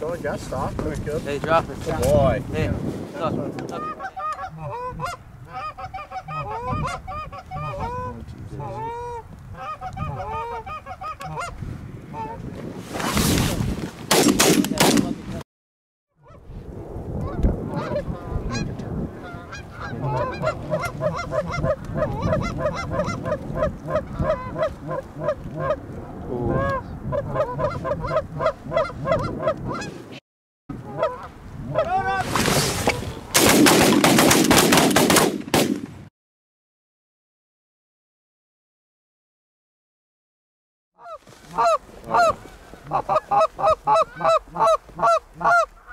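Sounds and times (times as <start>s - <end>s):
geese honking: 3.7s - 12.4s, 17.2s - 25.8s, 26.5s - 30.0s, 30.8s - 31.9s, 41.0s - 45.9s
shotgun fire: 14.1s - 15.2s, 33.4s - 36.0s.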